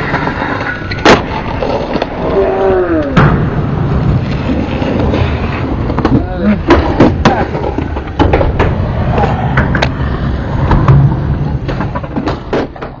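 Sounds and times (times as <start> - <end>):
skateboard wheels rolling on concrete: 0.0 - 13.0
skateboard clacks: 4.2 - 13.0.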